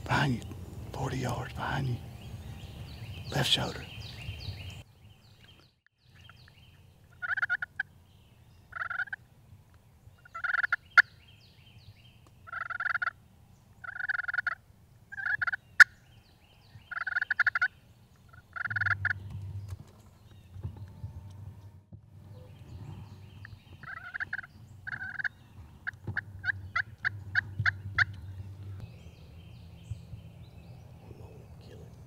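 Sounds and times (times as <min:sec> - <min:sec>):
turkey gobbling: 0:07.1 - 0:07.9, 0:08.7 - 0:09.2, 0:10.2 - 0:11.1, 0:12.5 - 0:13.2, 0:13.8 - 0:15.9, 0:16.9 - 0:17.7, 0:18.3 - 0:19.3, 0:23.8 - 0:28.3.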